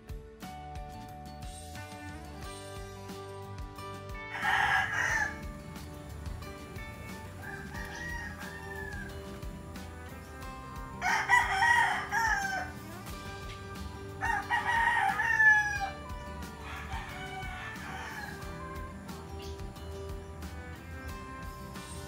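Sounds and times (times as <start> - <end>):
soft background music: 0.0 - 22.0
rooster crowing: 4.3 - 5.7, 7.1 - 9.4, 10.9 - 12.9, 14.1 - 19.0.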